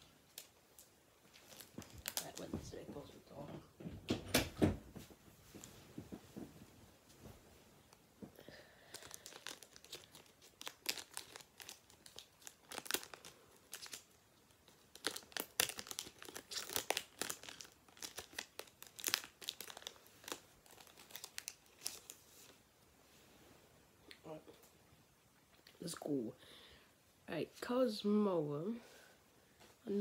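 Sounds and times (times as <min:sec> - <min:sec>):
foil wrapper crinkling and tearing: 0:00.3 - 0:02.5, 0:08.8 - 0:22.6.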